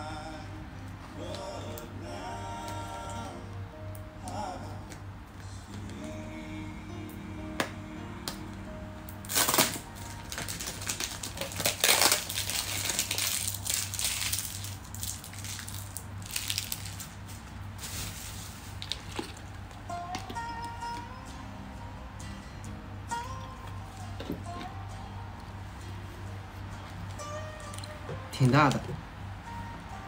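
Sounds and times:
quiet background music: 0:00.0 - 0:30.0
plastic bottle crinkling: 0:09.2 - 0:19.7.

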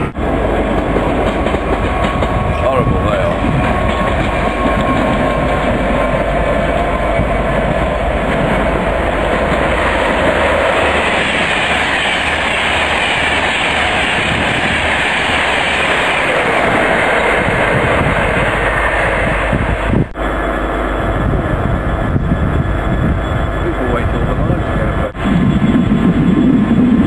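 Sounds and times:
train wheels rumbling on rails: 0:00.0 - 0:27.0
clickety-clack over rail joints: 0:00.6 - 0:18.0.

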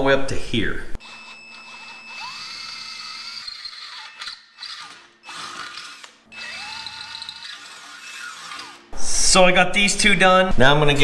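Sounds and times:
drill motor whining: 0:01.0 - 0:09.0.

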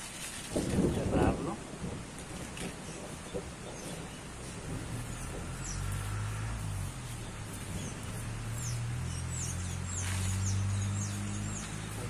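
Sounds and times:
low motor hum: 0:02.9 - 0:12.0
high bird chirps: 0:07.0 - 0:12.0.

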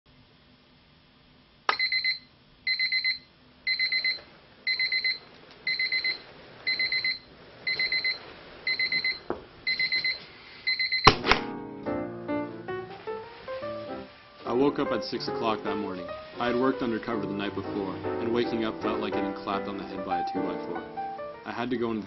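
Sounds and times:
alarm clock beeping: 0:01.7 - 0:11.2.

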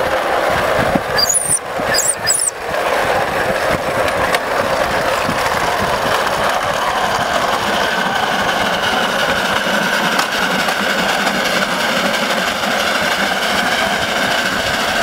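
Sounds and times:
miniature steam locomotive running: 0:00.0 - 0:15.0
high squeaks: 0:01.2 - 0:02.6.

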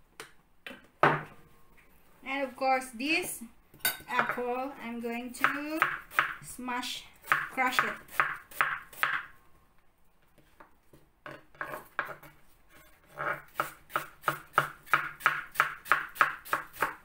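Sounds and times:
knife chopping on cutting board: 0:05.4 - 0:06.4, 0:07.3 - 0:09.3, 0:13.4 - 0:17.0.

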